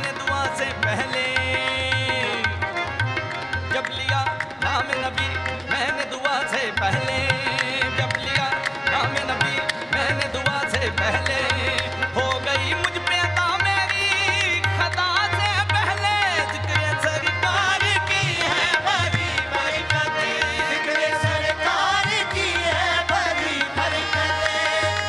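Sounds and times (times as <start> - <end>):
harmoniums: 0.0 - 25.0
tabla: 0.0 - 25.0
people clapping in time: 7.5 - 25.0.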